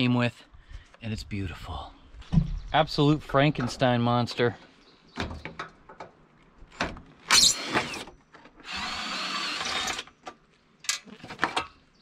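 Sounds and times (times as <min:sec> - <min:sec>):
cordless drill running: 0:07.4 - 0:10.1.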